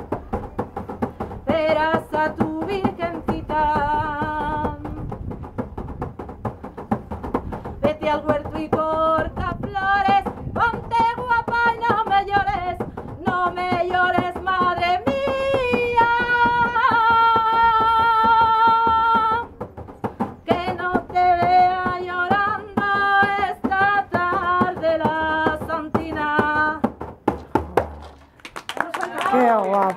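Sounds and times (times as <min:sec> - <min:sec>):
frame drum tapped with fingers: 0:00.0 - 0:28.2
woman singing: 0:01.4 - 0:05.1, 0:07.8 - 0:19.5, 0:20.4 - 0:26.9.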